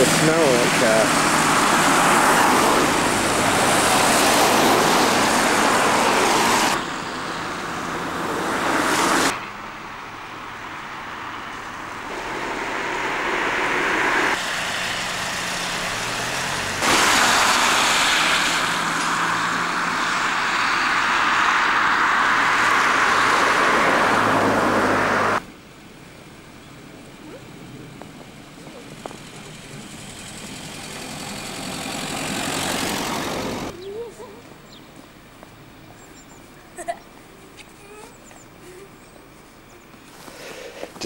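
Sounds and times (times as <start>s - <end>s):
car tyres hissing on slush: 0.0s - 6.8s, 11.9s - 25.4s, 40.1s - 41.0s.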